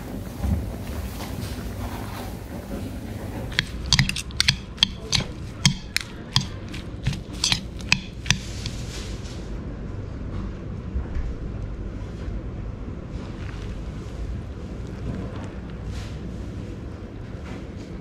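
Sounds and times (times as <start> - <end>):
metal spoon clinking on bowl: 3.5 - 8.8.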